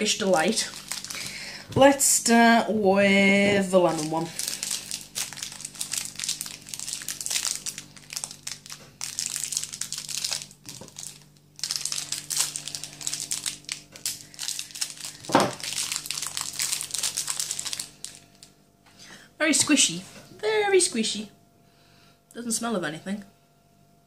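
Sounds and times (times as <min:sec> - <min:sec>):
plastic wrapper crinkling: 0:00.0 - 0:02.1, 0:03.5 - 0:18.6.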